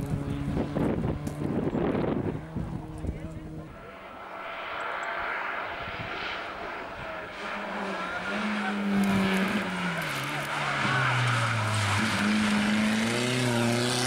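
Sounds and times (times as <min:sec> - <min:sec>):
race car engine passing: 0:00.0 - 0:14.0.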